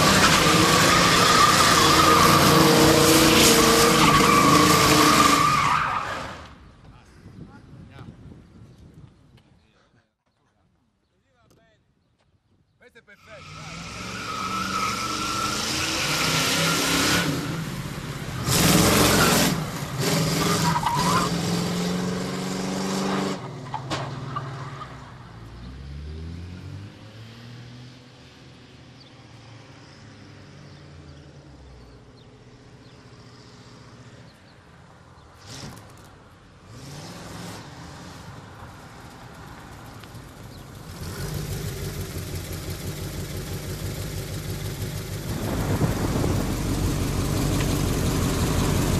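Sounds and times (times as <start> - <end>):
car engine revving: 13.4 - 23.4, 40.1 - 48.9
loud burst: 45.2 - 47.4.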